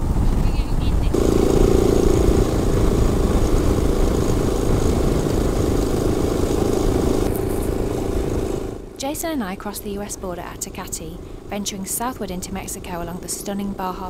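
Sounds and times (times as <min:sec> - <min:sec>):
wind rushing: 0:00.0 - 0:08.8
dirt bike engine running: 0:01.0 - 0:14.0.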